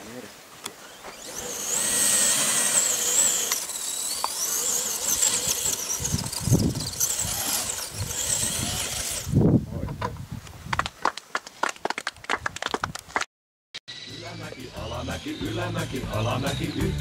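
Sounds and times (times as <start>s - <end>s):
electric motor whining: 0.7s - 9.4s, 13.9s - 17.0s.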